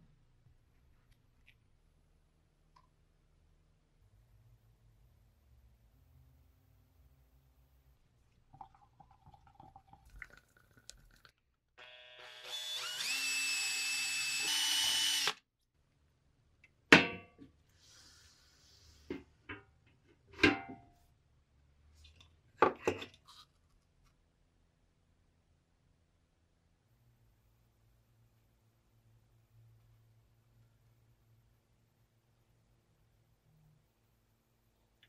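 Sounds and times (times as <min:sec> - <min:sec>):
power drill motor whine: 0:11.8 - 0:15.4.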